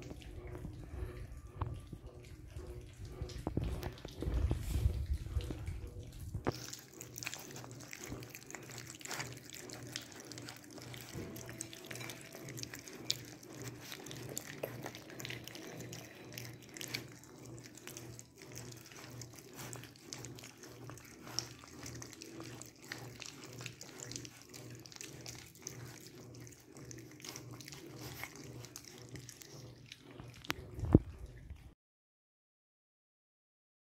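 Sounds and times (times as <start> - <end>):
low steady hum: 0.0 - 31.8
puppies eating wet food: 0.0 - 31.8.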